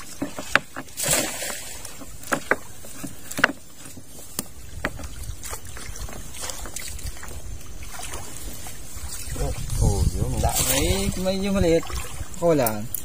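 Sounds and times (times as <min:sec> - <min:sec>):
water splashing: 0:00.0 - 0:13.0
wet fishing net handled: 0:00.0 - 0:13.0
sharp knocks and clicks: 0:00.2 - 0:01.0, 0:02.0 - 0:05.1.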